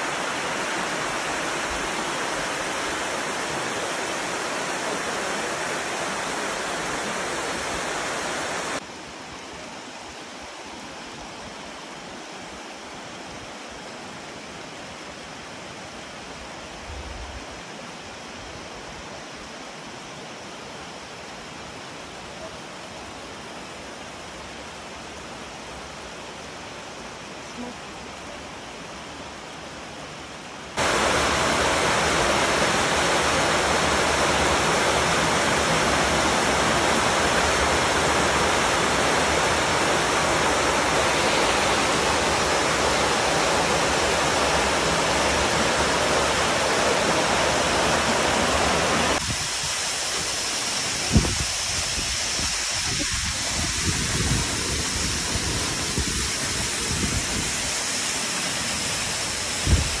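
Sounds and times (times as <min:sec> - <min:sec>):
waterfall roar: 0:00.0 - 0:16.1, 0:19.7 - 1:00.0
wind gusts on microphone: 0:46.9 - 0:58.0, 0:59.3 - 1:00.0.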